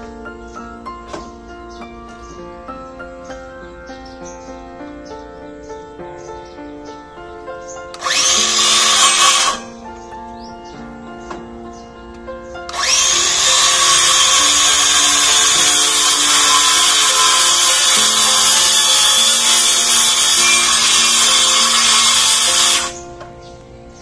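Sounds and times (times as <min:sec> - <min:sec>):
background music: 0:00.0 - 0:24.0
circular saw cutting metal: 0:08.0 - 0:09.7, 0:12.7 - 0:23.0.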